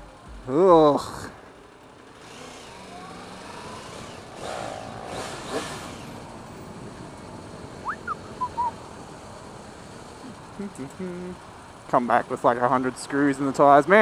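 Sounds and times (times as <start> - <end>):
motorcycle engine running: 0.0 - 14.0
road and wind noise: 0.0 - 14.0
short high chirps: 7.8 - 8.8.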